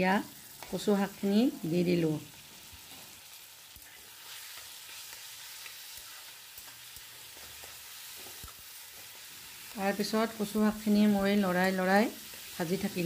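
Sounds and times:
onions sizzling in oil: 0:00.0 - 0:13.0
spatula scraping and tapping wok: 0:03.8 - 0:09.8.

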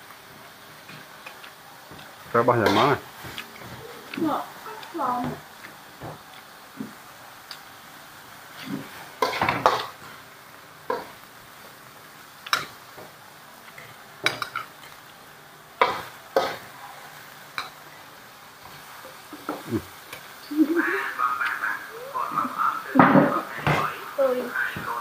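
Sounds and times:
faint sizzle: 0:00.0 - 0:25.0
tongs clanking on steel wok: 0:02.6 - 0:02.9, 0:12.5 - 0:12.8, 0:14.2 - 0:15.0.

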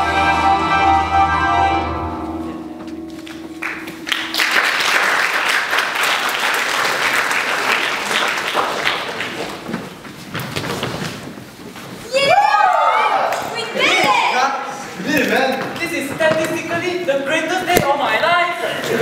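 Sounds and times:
audience applause: 0:03.4 - 0:10.0.

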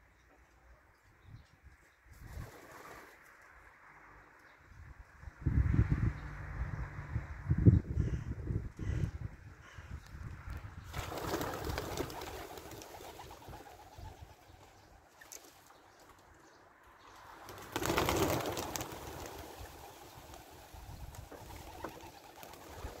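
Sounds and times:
pigeon wing beats clattering: 0:11.0 - 0:14.2, 0:17.5 - 0:23.0.

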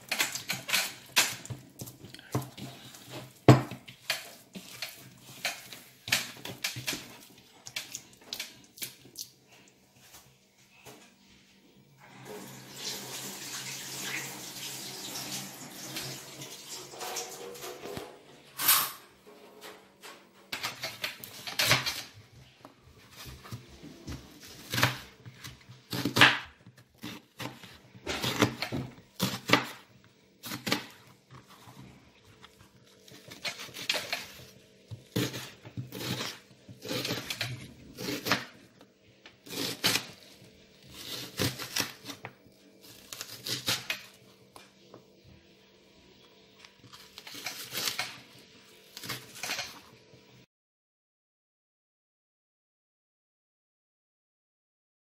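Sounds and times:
knife slicing onion: 0:24.1 - 0:31.0, 0:33.1 - 0:38.6, 0:39.4 - 0:40.3, 0:40.9 - 0:44.1, 0:47.1 - 0:48.2.

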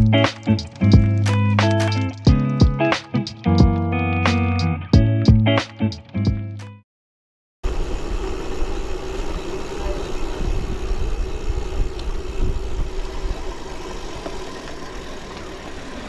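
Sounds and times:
bike tyres rolling: 0:07.7 - 0:16.0
wind buffeting microphone: 0:07.7 - 0:16.0.

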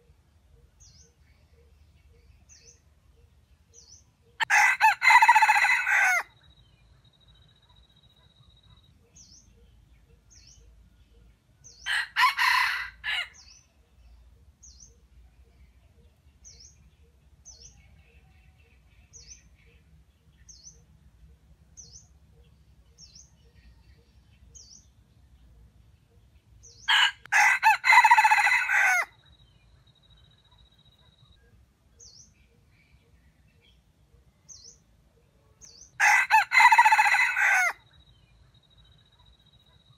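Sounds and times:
rooster crowing: 0:04.4 - 0:06.3, 0:11.9 - 0:13.4, 0:26.9 - 0:29.1, 0:36.0 - 0:37.8.

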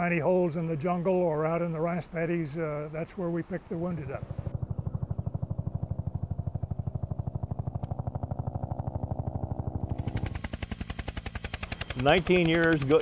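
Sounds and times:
helicopter rotor beating: 0:00.0 - 0:13.0
helicopter engine running: 0:02.8 - 0:13.0.

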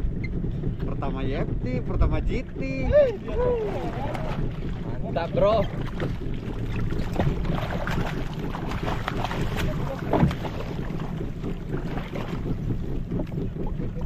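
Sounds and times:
boat engine idling: 0:00.0 - 0:14.0
wind on microphone: 0:00.0 - 0:14.0.

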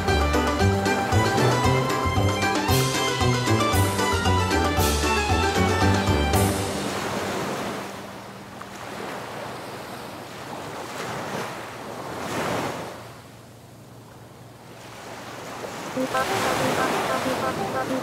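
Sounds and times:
ocean surf breaking on beach: 0:06.6 - 0:13.2, 0:14.6 - 0:18.0.

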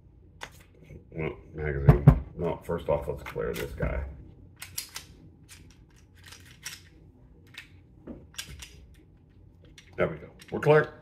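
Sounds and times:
pistol mechanism clicking: 0:04.6 - 0:06.9.

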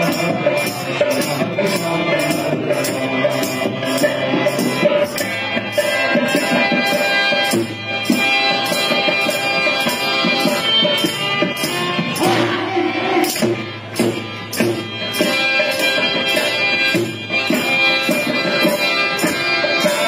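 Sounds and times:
music through a loudspeaker: 0:00.0 - 0:20.0.

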